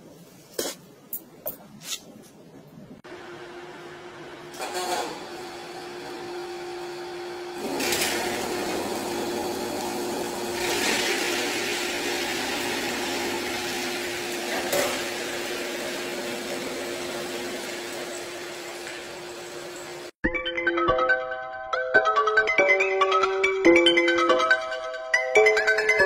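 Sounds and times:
machine humming: 3.0 - 20.2.

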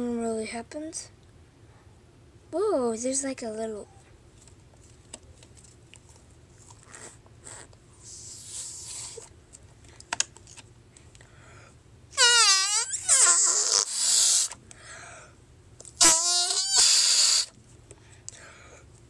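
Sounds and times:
air hissing from rubber toy: 7.4 - 9.3, 12.2 - 14.6, 16.0 - 17.5
squeaky toy squealing: 12.2 - 14.6, 16.0 - 17.5.

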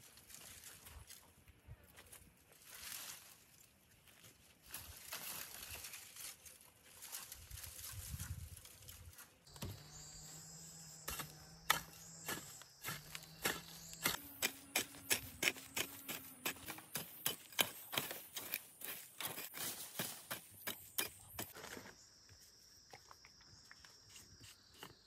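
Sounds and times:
dry brush stalks rustling: 0.0 - 21.6
hoe chopping and scraping soil: 9.4 - 22.0.

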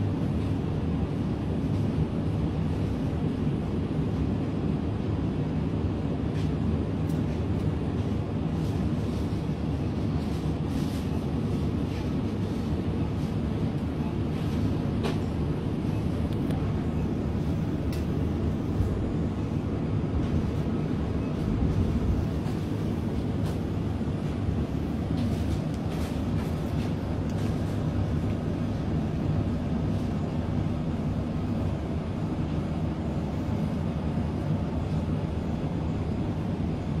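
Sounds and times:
supermarket background hum: 0.0 - 37.0.

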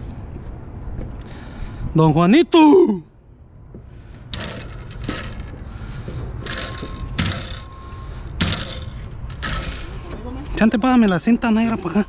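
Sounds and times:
straps scraping and rustling: 4.0 - 5.8.

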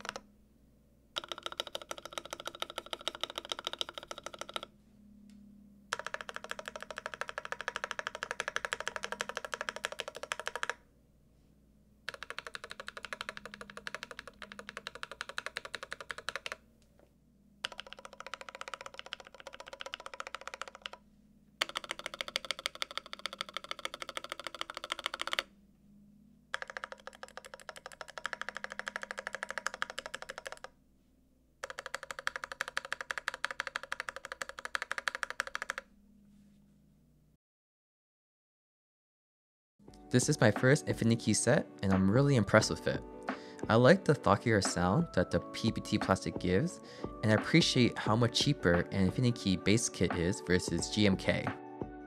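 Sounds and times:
fast mechanical keyboard typing: 0.0 - 0.2, 1.2 - 4.7, 5.9 - 10.8, 12.1 - 16.6, 17.6 - 21.0, 21.6 - 25.5, 26.5 - 30.7, 31.6 - 35.9.

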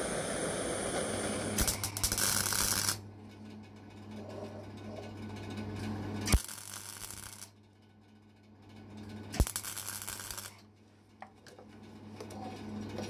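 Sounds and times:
welding arc crackling and hissing: 0.0 - 3.0, 6.3 - 7.5, 9.4 - 10.6
steady electrical hum: 0.0 - 13.0.

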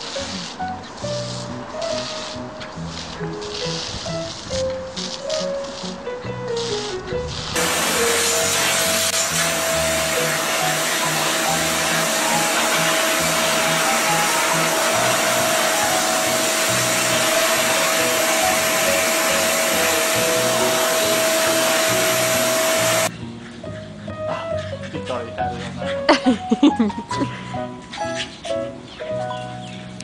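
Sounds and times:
vacuum cleaner running: 7.6 - 23.1.

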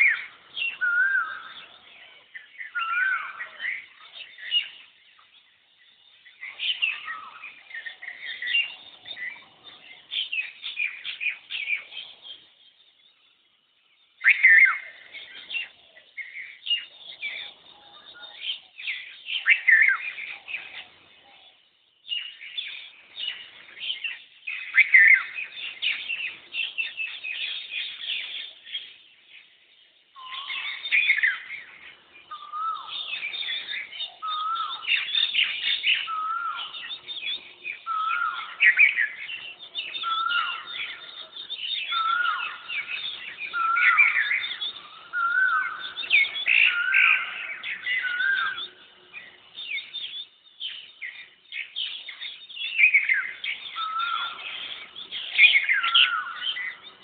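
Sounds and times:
birds chirping shrilly: 0.0 - 13.2, 14.0 - 57.0
bird whistled notes: 30.2 - 31.5, 49.6 - 56.8.

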